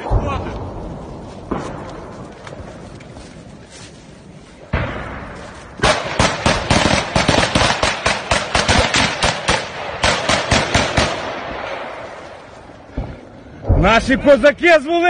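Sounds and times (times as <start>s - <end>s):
rapid close gunfire: 5.8s - 12.2s.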